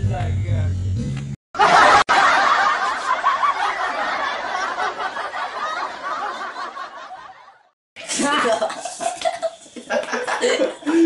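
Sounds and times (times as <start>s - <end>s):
crowd laughing: 1.6s - 7.8s, 8.4s - 11.0s.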